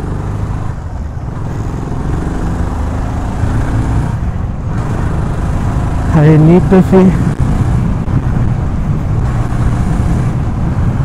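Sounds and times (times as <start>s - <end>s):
motorcycle engine running: 0.0s - 11.0s
road noise: 0.0s - 11.0s.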